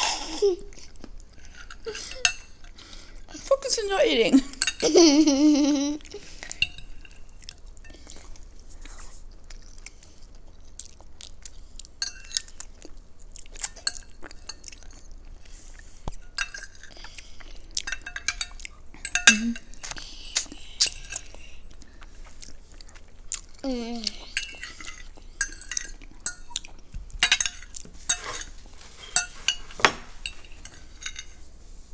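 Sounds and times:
chewing mouth sounds: 0:09.2 - 0:27.0
cutlery scraping glass plates: 0:27.2 - 0:31.4.

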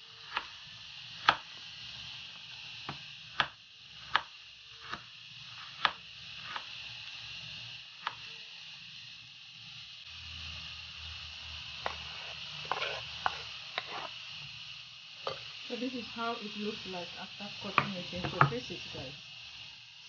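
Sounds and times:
knife chopping on wooden board: 0:01.2 - 0:01.5, 0:05.8 - 0:06.7.

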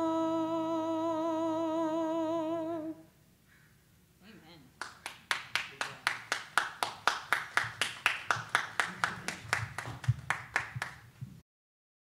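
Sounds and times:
group clapping in rhythm: 0:04.8 - 0:11.2.

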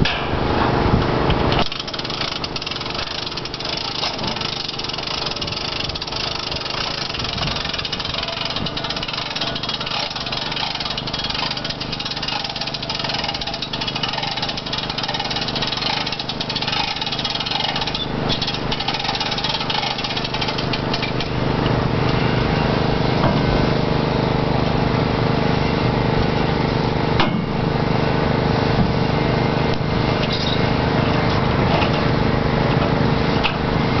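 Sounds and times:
motor running: 0:01.4 - 0:27.0.

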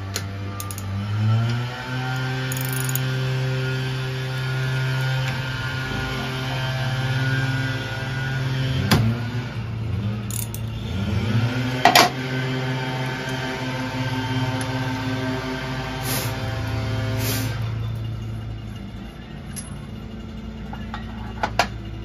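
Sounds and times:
low mechanical hum: 0:00.0 - 0:22.0
socket wrench metallic clinks: 0:00.6 - 0:00.9, 0:02.5 - 0:03.0, 0:10.3 - 0:10.7, 0:19.5 - 0:19.9.

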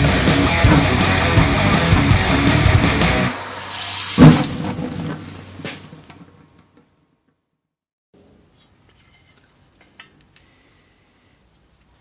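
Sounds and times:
rock music: 0:00.0 - 0:03.5.

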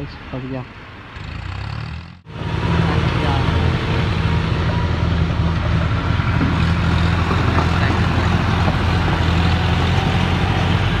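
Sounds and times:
tractor engine running: 0:01.2 - 0:11.0.

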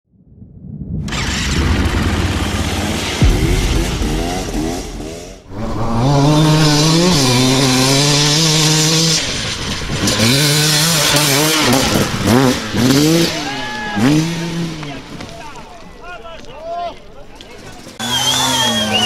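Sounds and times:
dirt bike engine revving: 0:01.1 - 0:15.1.

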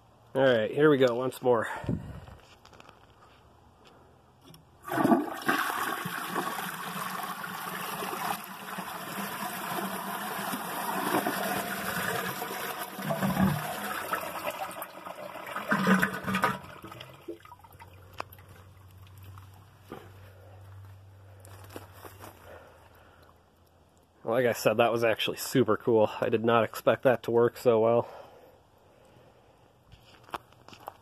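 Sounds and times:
toilet flush water rushing: 0:04.8 - 0:17.6
toilet bowls gurgling: 0:04.8 - 0:18.6.

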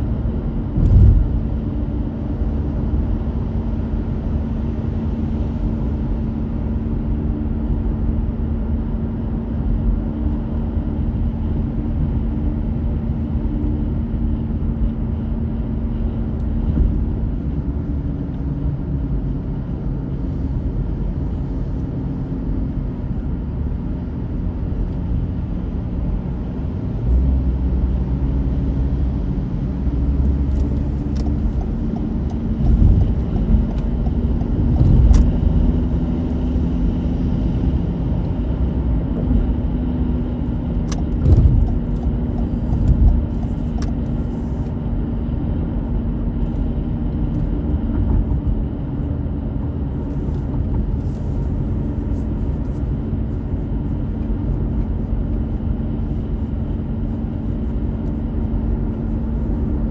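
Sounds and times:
car engine and tyre hum: 0:00.0 - 0:59.9
low thumps from bumps: 0:00.7 - 0:01.5.

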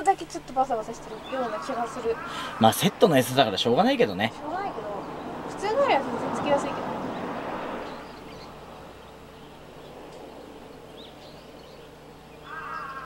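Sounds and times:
faint background hum: 0:00.0 - 0:13.0
faint bird chirps: 0:00.9 - 0:02.8.

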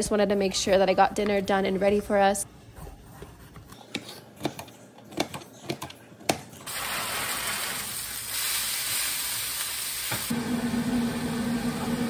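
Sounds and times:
steak sizzling in frying pan: 0:06.7 - 0:10.3.

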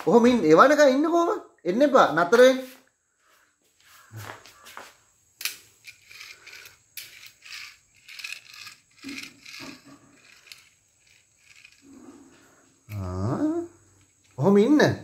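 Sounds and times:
toy car gears ratcheting whirrs: 0:05.4 - 0:14.4.

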